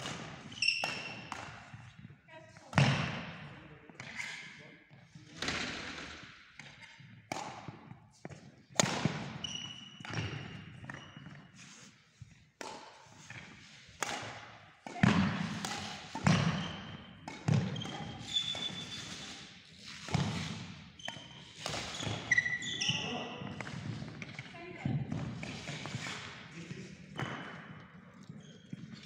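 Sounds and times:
racket striking shuttlecock: 0.0 - 1.9, 6.6 - 8.0, 8.8 - 9.4, 12.6 - 22.4
shoe squeaks: 0.4 - 1.3, 4.0 - 4.7, 9.3 - 12.0, 15.8 - 24.8, 25.4 - 26.2, 27.2 - 29.0.

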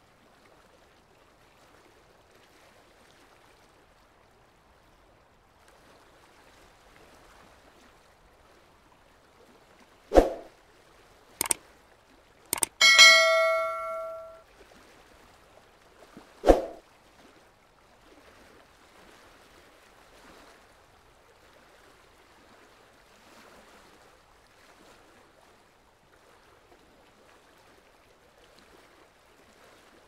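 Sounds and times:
swoosh: 10.2 - 10.5
notification bell ding: 12.6 - 14.4
quick clicks: 12.6 - 14.4.

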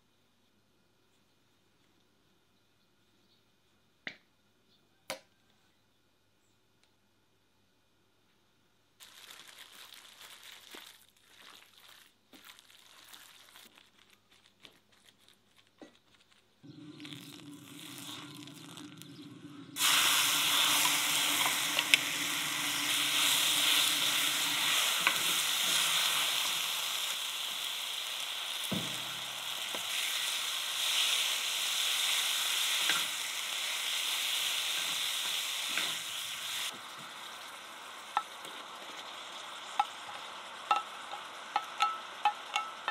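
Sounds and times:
meat sizzling on griddle: 9.0 - 42.9.

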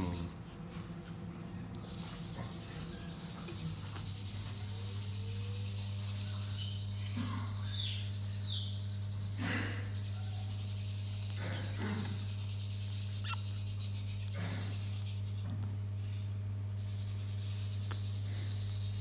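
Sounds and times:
faint chirps: 0.0 - 19.0
steady low hum: 0.0 - 19.0
cockatoo chick squawking: 13.1 - 13.6.

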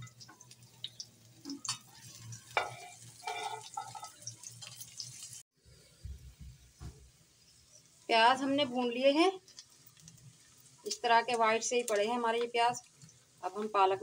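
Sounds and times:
onions sizzling in oil: 0.0 - 5.4, 6.0 - 14.0
spatula scraping a pan: 2.0 - 4.2
faint low knocks: 6.0 - 7.1.

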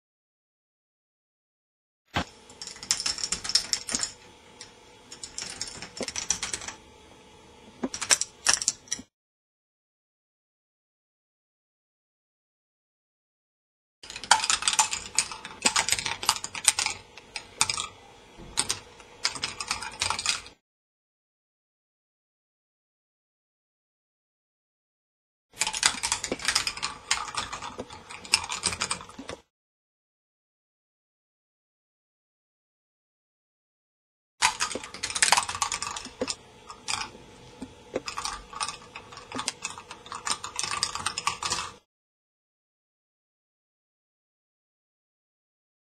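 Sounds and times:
balls clattering on plastic tracks: 14.1 - 17.9, 25.6 - 29.4, 34.4 - 41.8.

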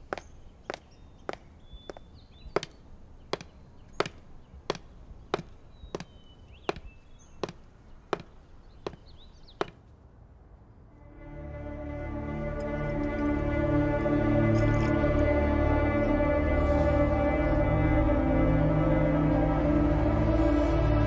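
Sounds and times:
music: 11.0 - 21.0.

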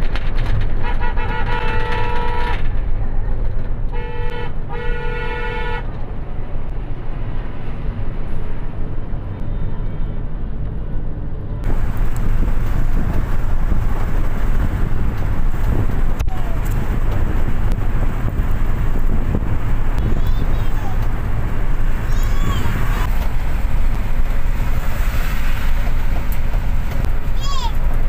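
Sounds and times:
vehicle road and engine rumble: 0.0 - 28.0
vehicle horn blasts: 0.8 - 2.7, 3.9 - 5.9.

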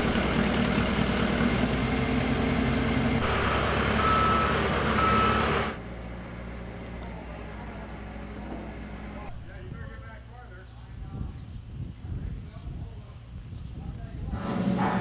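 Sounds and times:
diesel engine running: 0.0 - 15.0
back-up alarm beeps: 3.2 - 5.8.

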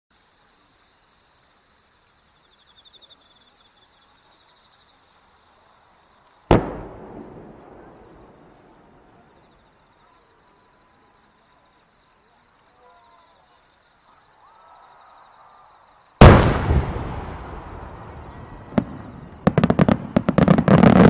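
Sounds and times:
firework bang echoing: 6.5 - 8.8, 16.2 - 21.0.

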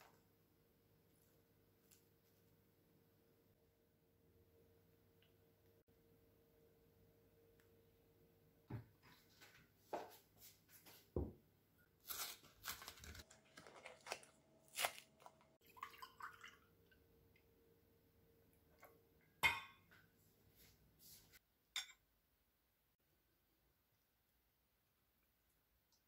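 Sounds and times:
milk pouring into glass: 15.6 - 17.0.

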